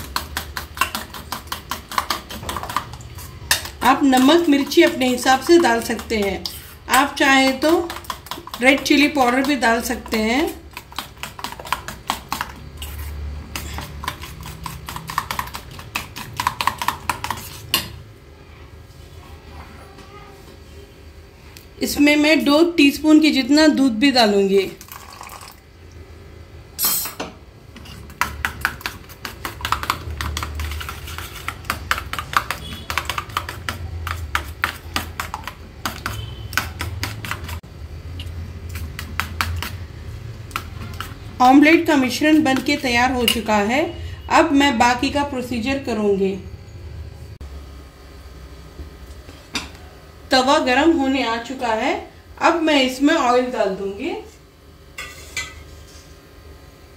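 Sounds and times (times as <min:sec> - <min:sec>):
spoon clinking against metal bowl: 0:43.2 - 0:43.5.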